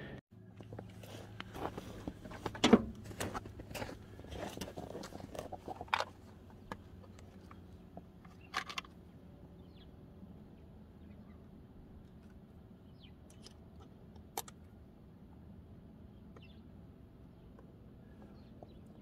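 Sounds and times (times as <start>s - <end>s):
footsteps crunching in snow: 0.6s - 5.7s.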